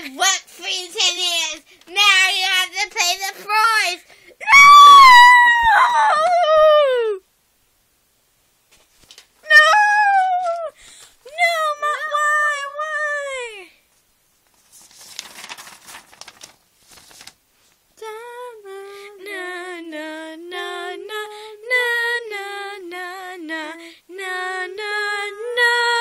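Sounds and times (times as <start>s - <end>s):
girl singing wordless tune: 0.0s - 4.6s, 9.4s - 13.8s, 17.9s - 26.0s
paper rustling: 8.7s - 9.4s, 14.4s - 17.8s.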